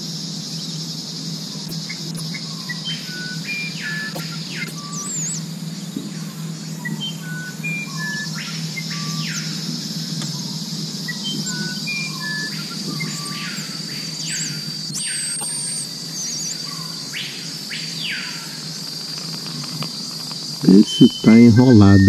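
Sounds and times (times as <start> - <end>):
high insect drone: 0.0 - 22.0
downward-sweeping calls: 0.5 - 22.0
whistled bird notes: 0.5 - 22.0
faint low hum: 18.2 - 22.0.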